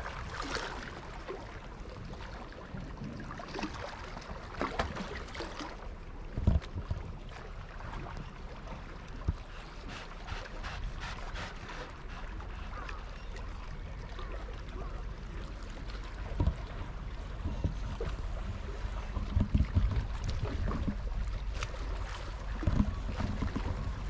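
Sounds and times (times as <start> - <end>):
wind buffeting microphone: 16.1 - 24.0.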